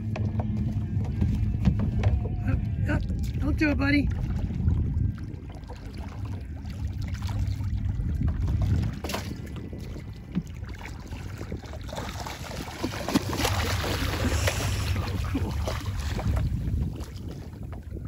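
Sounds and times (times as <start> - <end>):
water lapping around boat: 0.0 - 18.0
wind on microphone: 0.0 - 18.0
shark splashing: 8.6 - 17.6.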